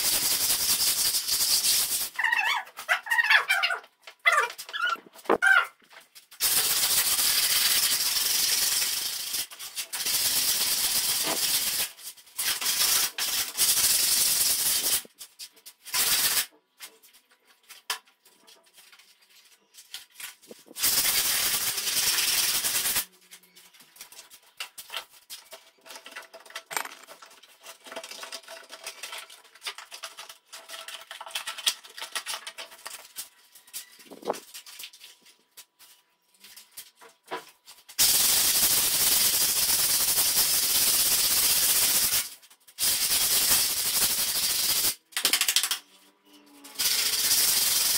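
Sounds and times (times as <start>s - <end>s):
sandpaper rubbing on plaster wall: 0.0s - 2.3s, 6.4s - 15.2s, 15.8s - 16.5s, 18.9s - 25.0s, 37.9s - 45.0s, 46.6s - 47.9s.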